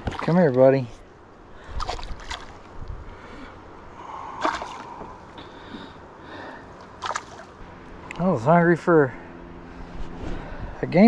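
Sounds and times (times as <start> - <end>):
fish splashing at surface: 4.4 - 5.0, 7.0 - 7.6.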